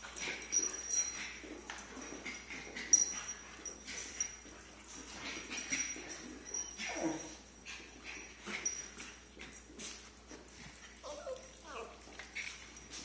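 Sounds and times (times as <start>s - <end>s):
dogs scuffling: 0.0s - 13.0s
dogs whimpering: 5.3s - 9.0s, 10.8s - 12.9s.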